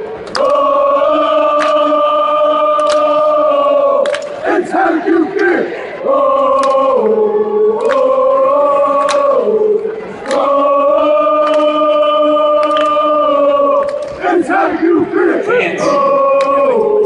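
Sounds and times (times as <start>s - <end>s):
crowd voices: 0.0s - 17.0s.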